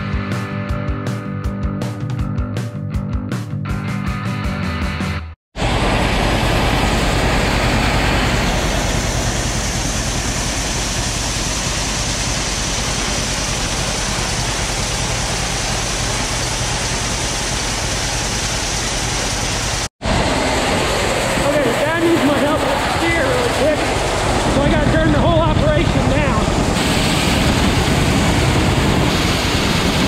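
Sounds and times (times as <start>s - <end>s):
tractor engine running: 5.6s - 30.0s
grain pouring into trailer: 6.3s - 19.9s.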